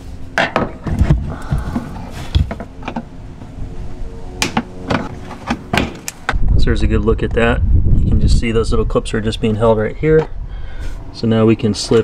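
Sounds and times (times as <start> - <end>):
background music with held tones: 3.4 - 5.9.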